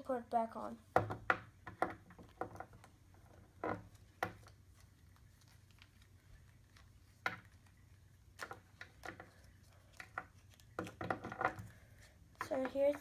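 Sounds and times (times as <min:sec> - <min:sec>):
plastic rubbing: 0:01.0 - 0:13.0.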